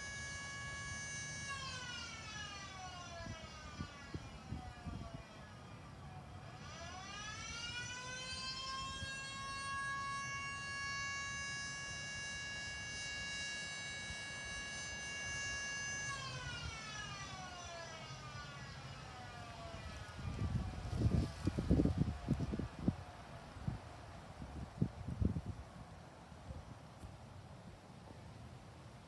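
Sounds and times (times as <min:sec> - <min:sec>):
siren winding: 0:06.4 - 0:22.5.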